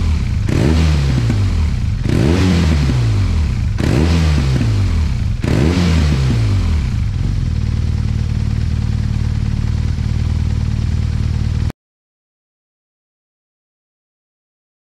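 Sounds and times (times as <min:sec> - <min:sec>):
motorcycle engine revving and idling: 0:00.0 - 0:11.7.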